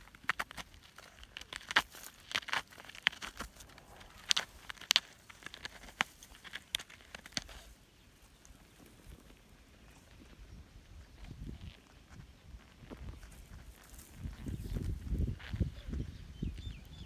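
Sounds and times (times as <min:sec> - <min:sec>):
animal digging in dry soil: 0:00.0 - 0:16.0
scratching and crackling of twigs: 0:00.0 - 0:17.0.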